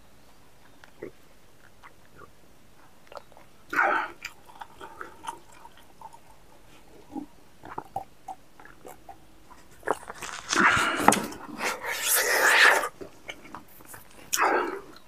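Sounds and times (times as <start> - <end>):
mouth clicks: 0.6 - 6.4, 7.0 - 15.0
man gulping a drink: 3.0 - 15.0.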